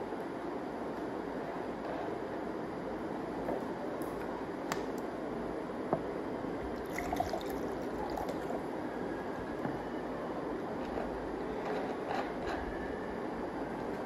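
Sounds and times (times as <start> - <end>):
steady room hiss: 0.0 - 14.0
water pouring into a glass pitcher: 6.8 - 8.6.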